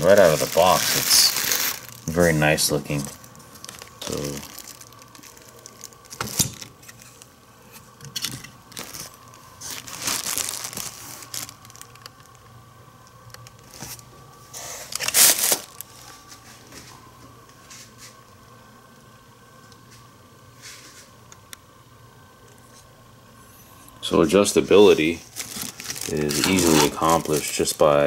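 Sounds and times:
cardboard box and plastic wrap crinkling: 0.0 - 12.4, 13.2 - 16.9, 24.3 - 28.0.

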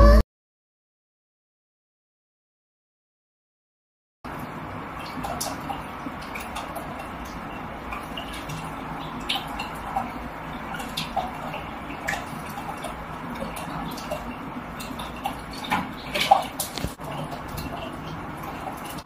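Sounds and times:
water splashing in fish tank: 4.3 - 19.0.

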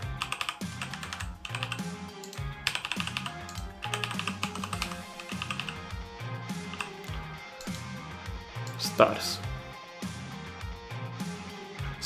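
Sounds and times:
mechanical keyboard typing: 0.0 - 5.9, 6.7 - 7.8
background music: 0.0 - 12.0.

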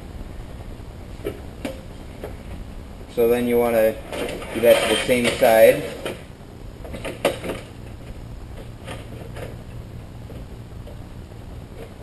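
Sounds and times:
plastic sheet clicking and knocking: 6.9 - 7.7.

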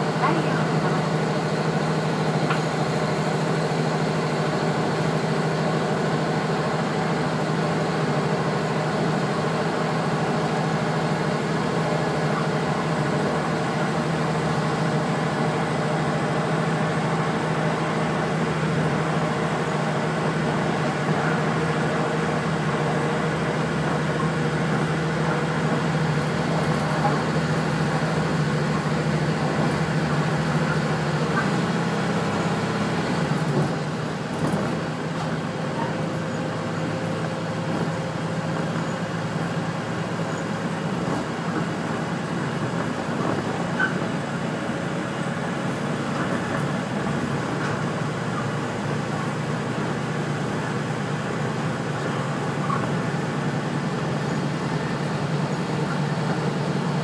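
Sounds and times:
railcar engine drone: 0.0 - 57.0
wheel and rail noise: 0.0 - 57.0.

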